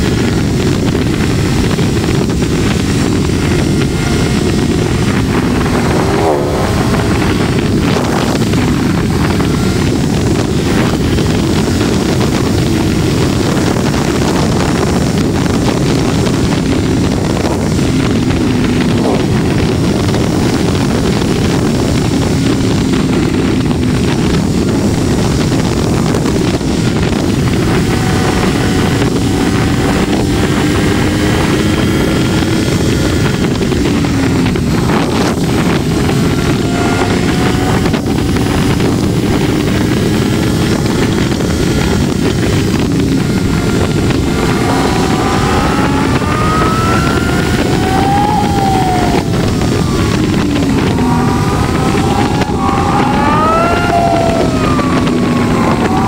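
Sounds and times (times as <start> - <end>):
motorcycle engine running: 0.0 - 56.0
wind rush on microphone: 0.0 - 56.0.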